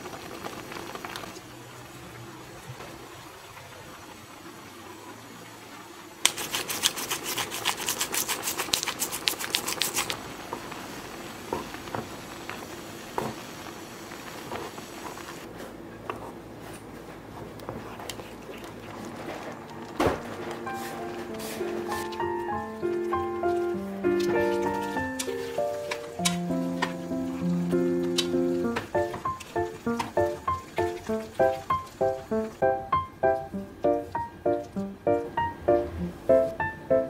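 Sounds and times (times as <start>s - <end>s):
sauce simmering and bubbling: 0.0s - 2.1s, 6.3s - 15.5s, 21.3s - 34.9s
rapid dry clicking: 6.2s - 10.2s, 23.0s - 32.6s.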